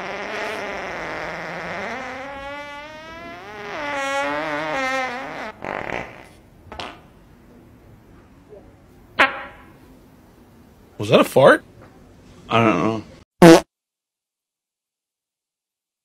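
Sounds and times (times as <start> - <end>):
long buzzing fart: 0.0 - 7.0, 13.4 - 13.7.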